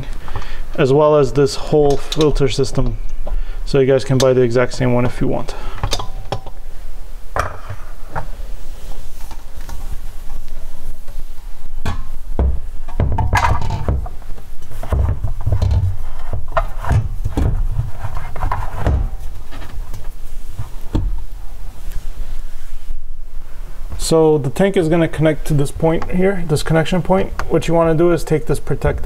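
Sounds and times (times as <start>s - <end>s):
water tank knocking and scraping: 11.8s - 21.2s.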